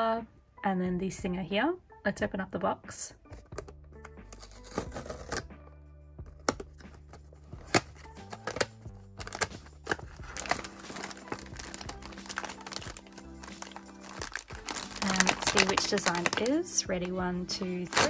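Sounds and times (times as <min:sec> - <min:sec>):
plastic bag rustling: 0:09.2 - 0:18.0.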